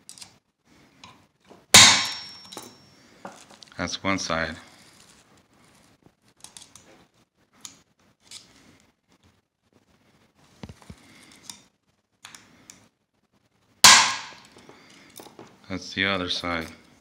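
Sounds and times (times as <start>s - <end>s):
loud sharp metal clack: 1.8s - 2.6s, 13.9s - 14.4s.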